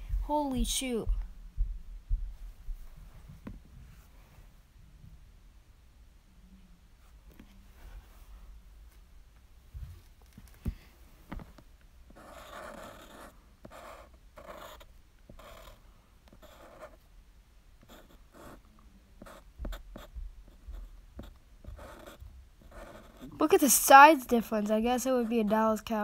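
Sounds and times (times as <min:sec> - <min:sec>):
marker pen scratching on paper: 0:12.1 - 0:17.0, 0:17.8 - 0:18.6, 0:19.2 - 0:26.0.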